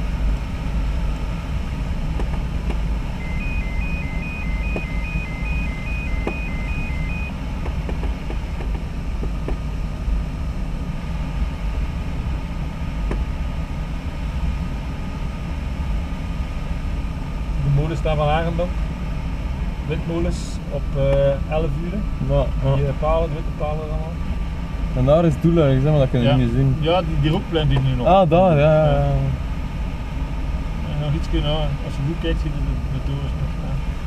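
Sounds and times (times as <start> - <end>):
high electronic beeps: 3.2 - 7.4.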